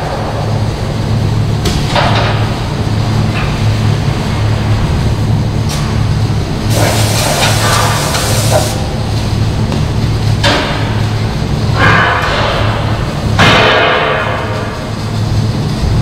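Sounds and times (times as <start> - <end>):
low machine hum: 0.0 - 16.0
loud hissing noise: 6.2 - 9.6.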